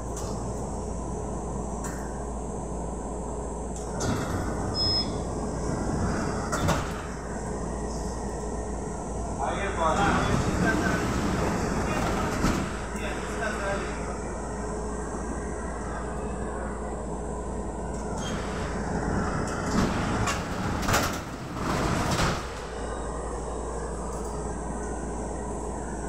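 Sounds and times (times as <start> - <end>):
electrical equipment hum: 0.0 - 26.0
tram doors rattling and knocking: 3.8 - 7.4, 9.3 - 13.5, 18.3 - 22.8.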